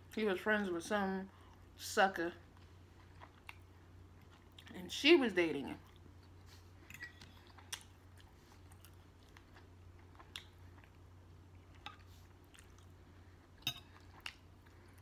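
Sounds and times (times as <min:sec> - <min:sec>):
steady low hum: 0:00.0 - 0:15.0
person chewing food: 0:02.4 - 0:04.7, 0:05.8 - 0:15.0.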